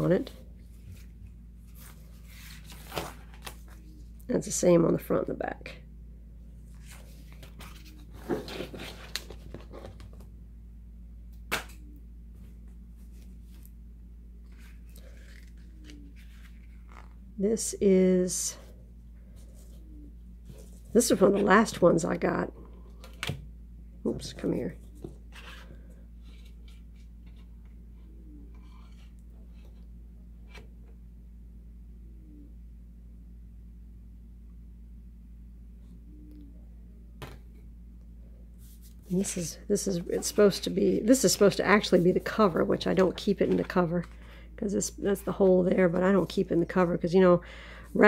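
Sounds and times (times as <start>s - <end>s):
steady low hum: 0.0s - 48.0s
paper rustling: 0.8s - 4.0s, 6.7s - 10.2s, 14.5s - 17.2s.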